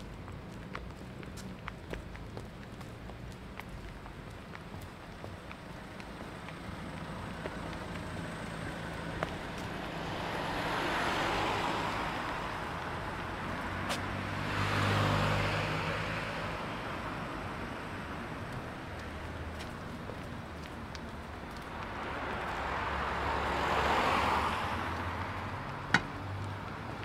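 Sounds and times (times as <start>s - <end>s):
background traffic: 0.0s - 27.0s
cars passing by: 0.0s - 27.0s
low engine hum: 0.0s - 27.0s.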